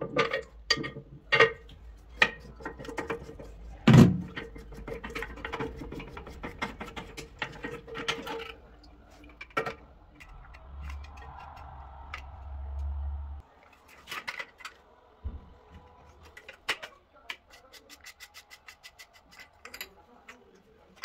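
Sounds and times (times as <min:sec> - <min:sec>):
low rumble: 0:09.9 - 0:13.4.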